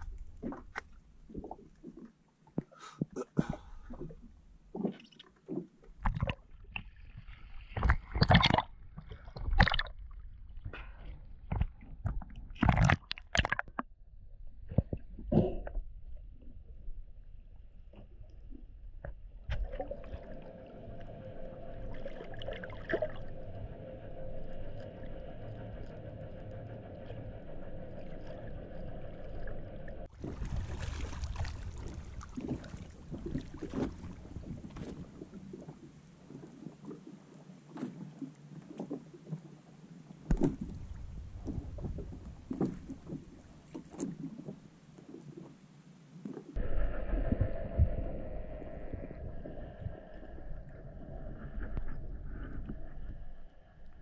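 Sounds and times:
water lapping and splashing: 0.0s - 13.8s, 19.5s - 24.2s, 24.8s - 46.6s
muffled underwater hum: 14.5s - 37.3s, 38.2s - 45.6s, 46.5s - 54.0s.

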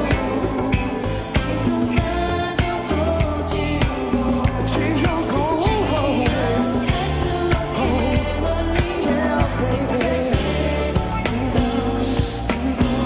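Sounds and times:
drum beat: 0.0s - 13.0s
live pop band playing: 0.0s - 13.0s
man singing into microphone: 4.5s - 13.0s.

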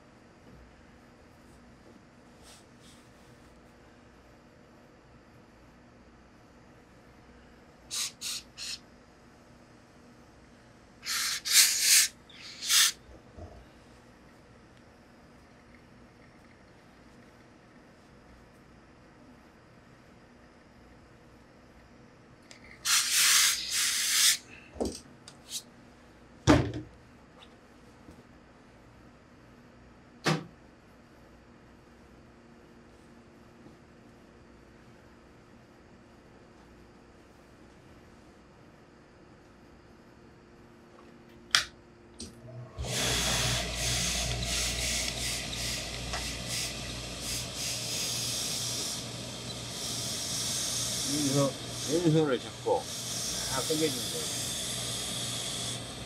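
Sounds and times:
steam iron hissing: 7.9s - 8.8s, 11.0s - 13.0s, 22.8s - 24.4s, 42.8s - 56.0s.

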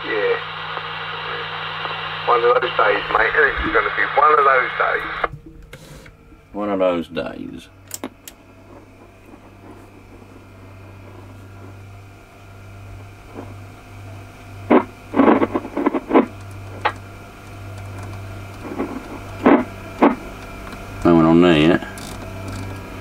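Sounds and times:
bursts of static: 0.0s - 23.0s
radio receiver hissing and humming: 0.0s - 23.0s.

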